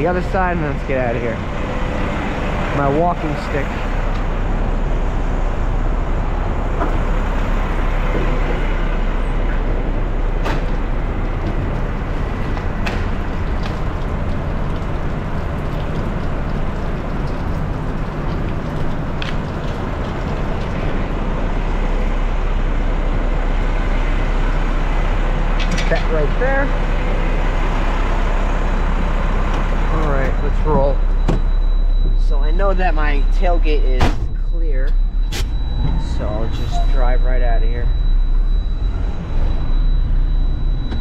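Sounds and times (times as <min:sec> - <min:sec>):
garbage truck engine running: 0:00.0 - 0:41.0.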